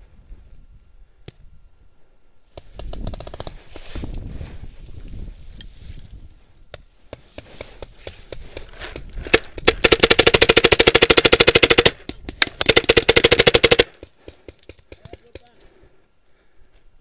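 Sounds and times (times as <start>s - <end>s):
paintball marker firing: 2.5s - 3.8s, 6.8s - 15.6s.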